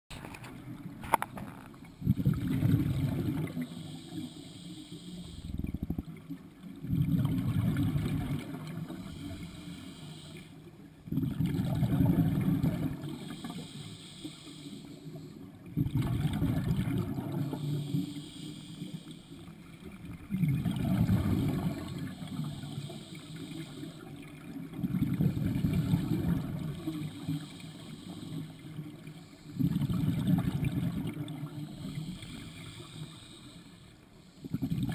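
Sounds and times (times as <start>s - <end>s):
exhaled air bubbling: 0.1s - 34.9s
regulator inhale hiss: 3.2s - 5.8s, 8.8s - 10.9s, 12.6s - 15.7s, 17.3s - 19.6s, 21.0s - 24.3s, 25.3s - 29.8s, 31.2s - 34.7s.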